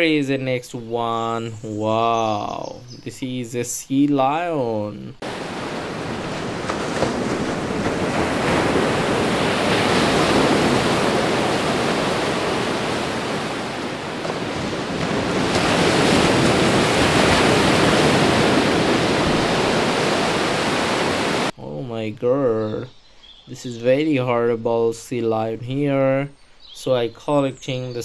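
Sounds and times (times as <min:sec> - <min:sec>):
surf and waves rushing: 0:05.2 - 0:21.5.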